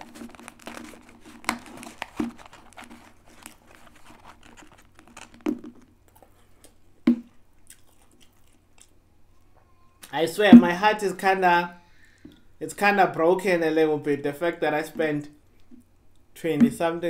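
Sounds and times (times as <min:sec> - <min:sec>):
cardboard packaging crinkling: 0:00.0 - 0:06.7.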